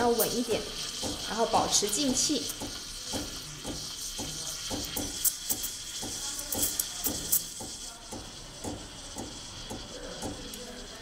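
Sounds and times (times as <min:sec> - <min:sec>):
steam wand frothing milk: 0:00.0 - 0:11.0.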